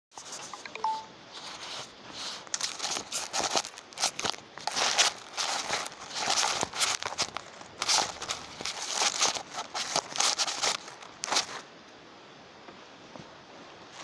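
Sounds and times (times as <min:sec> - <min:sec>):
hand rubbing on phone microphone: 0:00.2 - 0:04.1
brief beep: 0:00.6 - 0:01.1.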